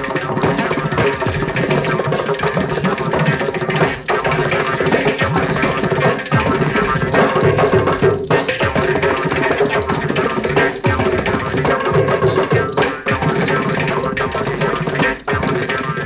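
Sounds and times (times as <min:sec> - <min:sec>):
drum and hand percussion music: 0:00.0 - 0:16.0.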